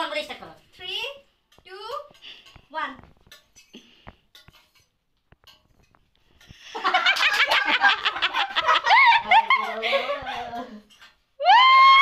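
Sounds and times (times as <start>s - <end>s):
faint clicks and taps: 1.5s - 6.6s
people laughing loudly: 6.7s - 10.8s.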